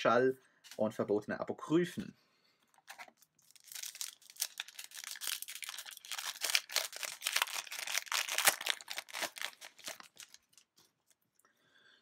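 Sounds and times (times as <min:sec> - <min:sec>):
foil wrapper crinkling and tearing: 0:02.7 - 0:11.2.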